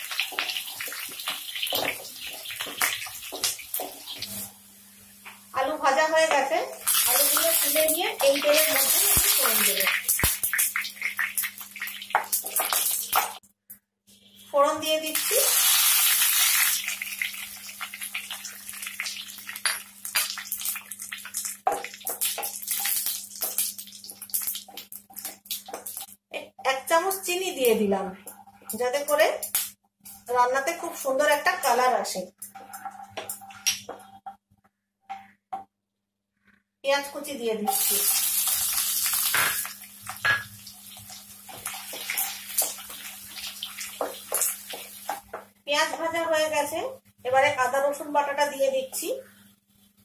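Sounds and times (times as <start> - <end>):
spices sizzling and popping in oil: 0.0 - 13.5, 14.3 - 34.4, 37.1 - 50.0
wooden spatula stirring in pan: 0.1 - 4.5, 40.7 - 46.2.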